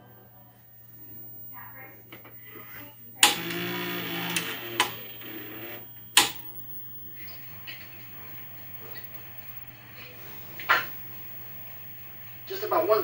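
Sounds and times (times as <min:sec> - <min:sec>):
motor whirring: 0:03.2 - 0:06.5
video recorder mechanism clunk: 0:03.2 - 0:06.5
mechanism click: 0:06.2 - 0:06.5.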